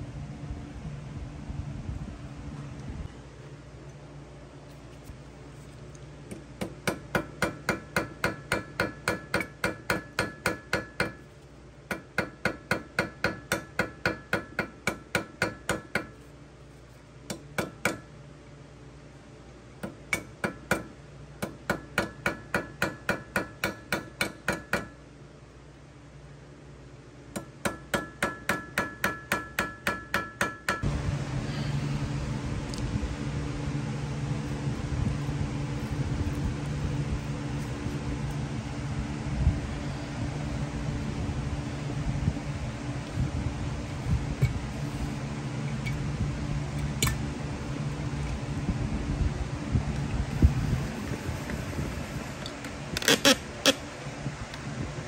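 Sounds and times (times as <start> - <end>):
steady machine hum: 0.0 - 55.0
hammer striking metal: 6.6 - 11.2, 11.9 - 16.1, 17.3 - 18.1, 19.8 - 25.0, 27.4 - 30.9.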